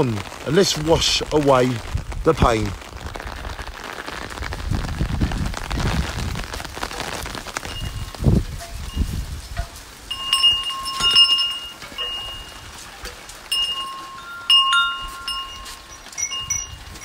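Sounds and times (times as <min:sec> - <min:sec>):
rain hissing: 0:00.0 - 0:17.0
wind chimes ringing: 0:07.6 - 0:17.0.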